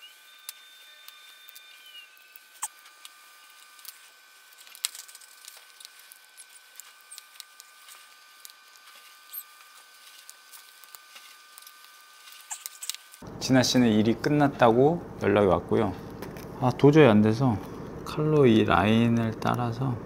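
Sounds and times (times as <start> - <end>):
tool clicks and scratches on camera: 0.0 - 13.2
faint high whine: 0.0 - 20.0.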